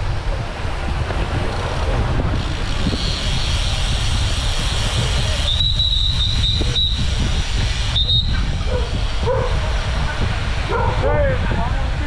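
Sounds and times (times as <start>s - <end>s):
wind on microphone: 0.0s - 12.0s
bicycle brakes squealing: 2.4s - 9.6s.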